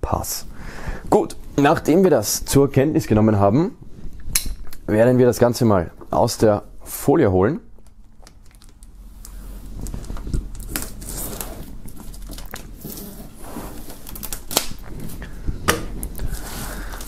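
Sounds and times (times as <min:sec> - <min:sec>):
plastic film crinkling: 0:07.8 - 0:17.0.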